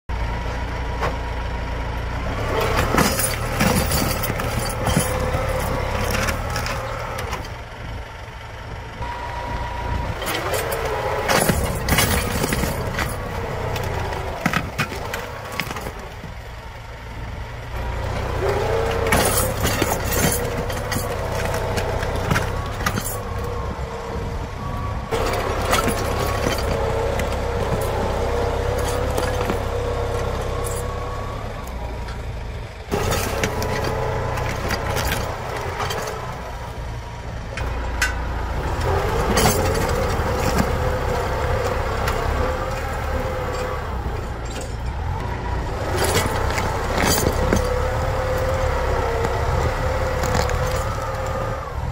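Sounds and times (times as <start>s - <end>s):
tractor diesel engine under load: 0.0s - 51.9s
plough discs cracking through soil: 10.2s - 16.5s, 18.1s - 23.6s, 25.1s - 30.9s, 32.9s - 36.6s, 38.6s - 44.9s, 45.6s - 51.8s.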